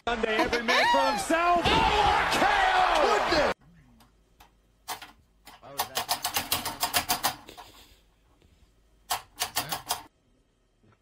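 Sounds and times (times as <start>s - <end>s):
rapid sharp clicks: 4.4s - 7.6s, 9.1s - 10.1s.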